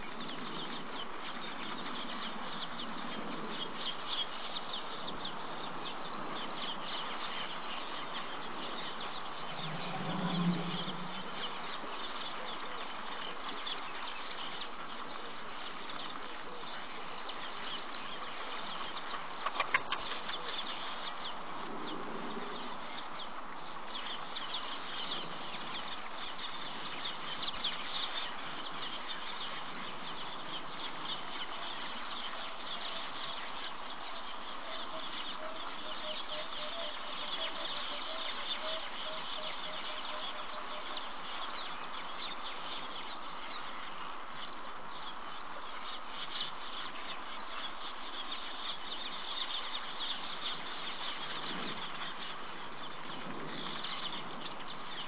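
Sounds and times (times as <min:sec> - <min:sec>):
birds chirping: 0:00.0 - 0:55.0
steady high hiss: 0:00.0 - 0:55.0
brief low sound: 0:09.4 - 0:11.4.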